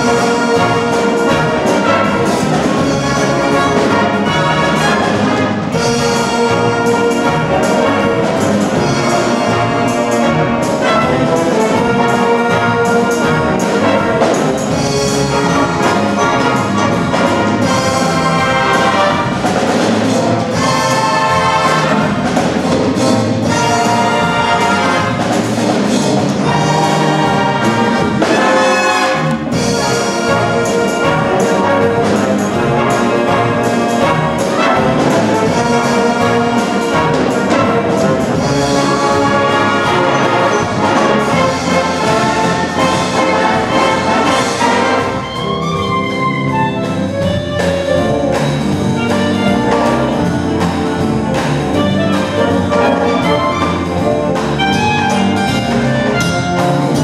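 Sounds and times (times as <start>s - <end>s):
wind band playing: 0.0s - 57.0s
clarinet solo: 41.4s - 48.1s, 51.8s - 57.0s.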